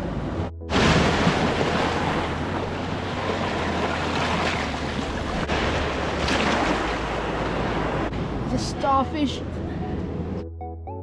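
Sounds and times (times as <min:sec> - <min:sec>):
waves washing over rocks and sand: 0:00.7 - 0:08.1.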